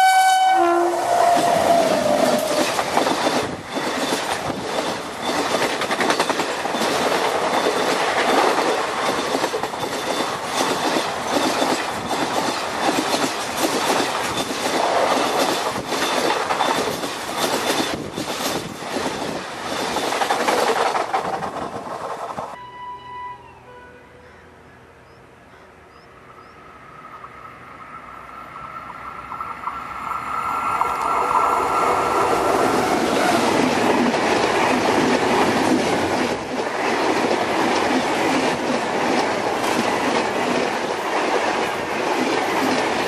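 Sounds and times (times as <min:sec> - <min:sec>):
passing train rushing roar: 0:00.0 - 0:43.0
train wheels clattering over rail joints: 0:01.3 - 0:22.6.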